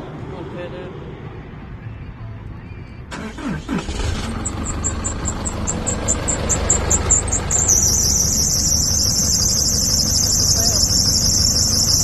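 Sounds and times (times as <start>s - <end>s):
diesel truck engine idling: 3.1s - 12.0s
rapid high-pitched chirping: 4.6s - 12.0s.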